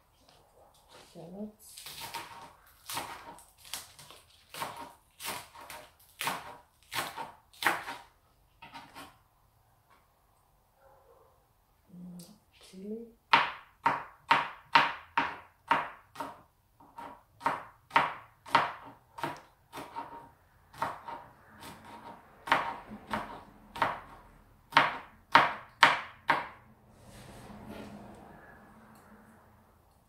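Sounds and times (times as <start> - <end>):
knife chopping on cutting board: 1.8 - 9.2, 13.3 - 26.6.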